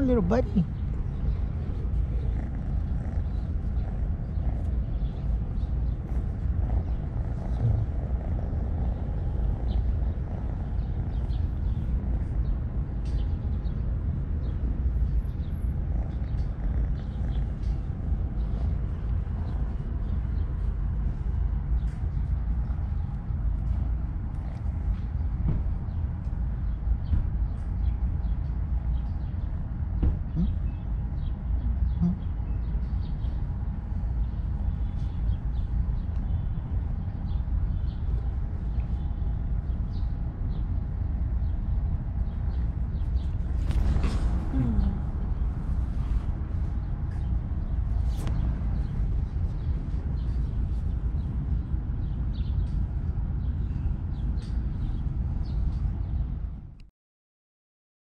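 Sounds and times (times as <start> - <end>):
kitten purring: 0.0 - 25.4, 31.6 - 51.6
steady low rumble: 0.0 - 56.9
faint bird chirps: 30.3 - 33.4, 42.5 - 46.2.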